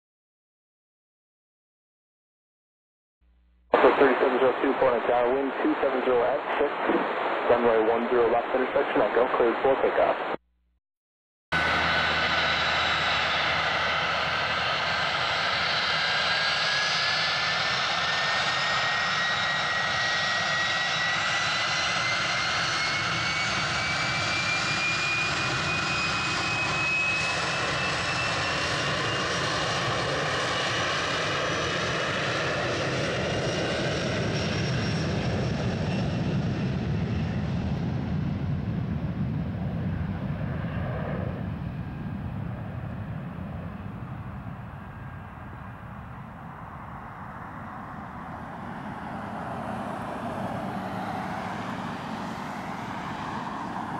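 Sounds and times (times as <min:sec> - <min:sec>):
jet engines roaring with whine: 0:03.7 - 0:10.4, 0:11.6 - 0:53.9.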